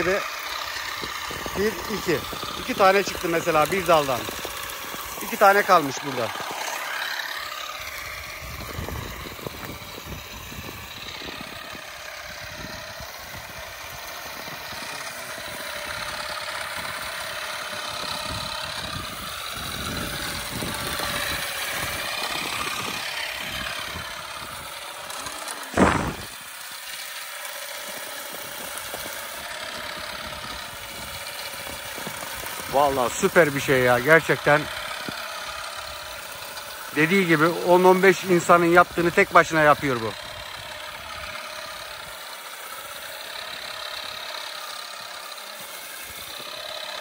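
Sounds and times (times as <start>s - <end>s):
electric olive harvester whining: 0.0s - 47.0s.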